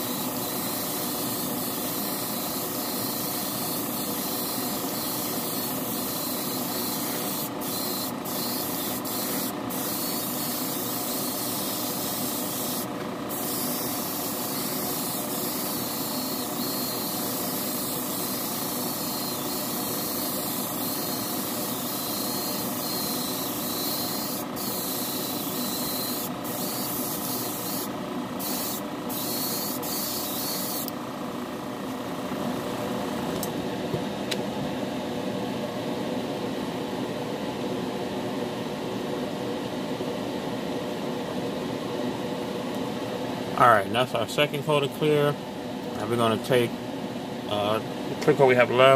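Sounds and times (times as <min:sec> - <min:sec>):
spray gun hissing: 0:00.0 - 0:22.0
spray booth fan hum: 0:00.0 - 0:48.9.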